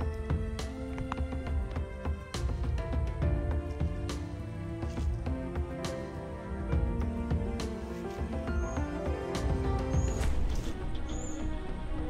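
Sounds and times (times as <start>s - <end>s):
instrumental music with beat: 0.0s - 10.9s.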